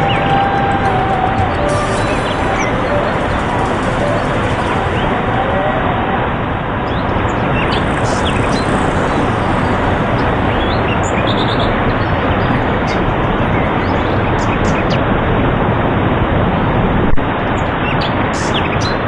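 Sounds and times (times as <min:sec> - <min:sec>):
stream rushing over boulders: 0:00.0 - 0:14.3.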